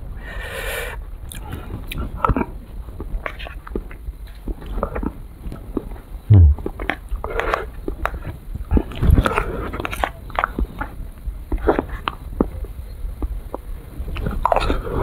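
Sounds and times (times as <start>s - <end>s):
dull low thump: 6.3s - 6.7s.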